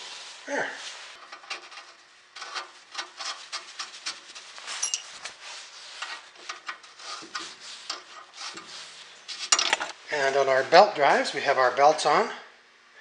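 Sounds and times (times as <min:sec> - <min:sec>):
metal scrapes and clicks: 0:01.2 - 0:10.0.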